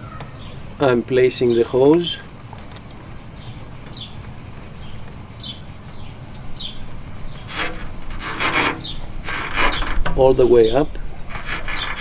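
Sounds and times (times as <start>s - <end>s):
rubber hose rubbing and scraping: 7.2s - 12.0s.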